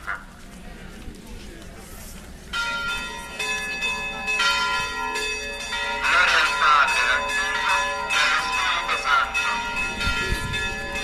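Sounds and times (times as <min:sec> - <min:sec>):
people's voices: 0:00.0 - 0:11.0
church bells ringing: 0:02.5 - 0:11.0.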